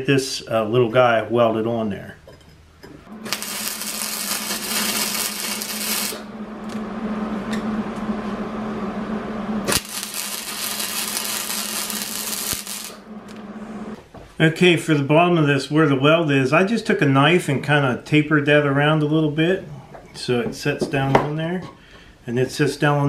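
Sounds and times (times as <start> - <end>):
welder crackling: 3.1 - 7.6, 9.6 - 14.0
power tool humming: 3.1 - 7.7, 9.6 - 14.0.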